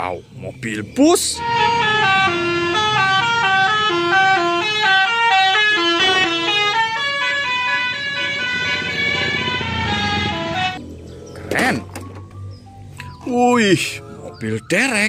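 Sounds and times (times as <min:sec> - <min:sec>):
multi-tone musical bus horn: 0:01.2 - 0:10.8.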